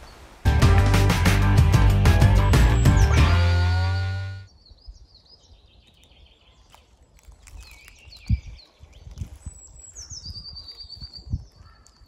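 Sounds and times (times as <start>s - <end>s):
birds singing and chirping: 2.3s - 3.8s, 4.5s - 12.0s.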